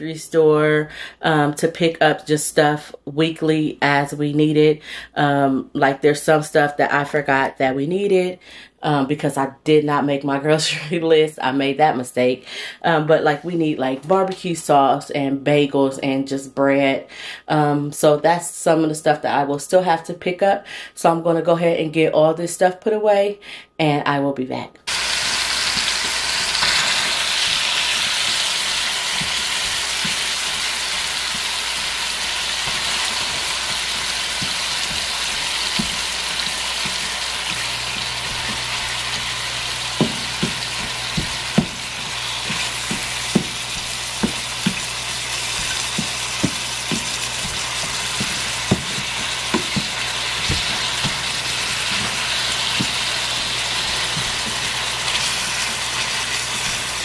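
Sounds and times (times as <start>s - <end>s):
meat sizzling in a skillet: 24.9s - 57.0s
spatula tapping and scraping pan: 25.2s - 57.0s.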